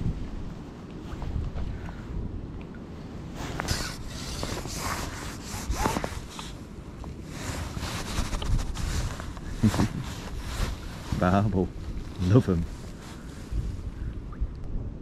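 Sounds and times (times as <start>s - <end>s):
wind buffeting microphone: 0.0s - 15.0s
clothing rustling and scraping: 3.3s - 13.8s.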